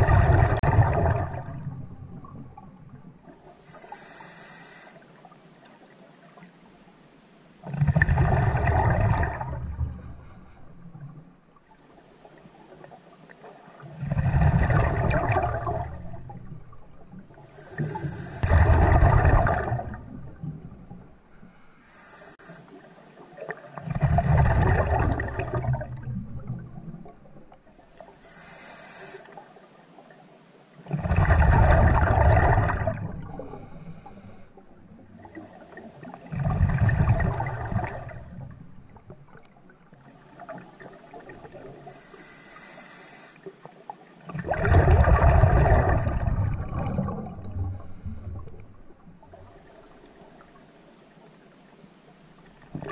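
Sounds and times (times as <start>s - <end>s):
exhaled bubbles rushing: 0.0s - 3.4s, 7.6s - 10.0s, 13.8s - 21.0s, 23.4s - 28.1s, 30.9s - 33.5s, 34.9s - 39.5s, 44.3s - 50.0s
regulator hissing on inhale: 3.6s - 5.0s, 9.7s - 10.9s, 17.4s - 18.5s, 21.1s - 22.6s, 28.2s - 29.3s, 33.2s - 34.6s, 41.8s - 43.5s, 47.6s - 48.5s.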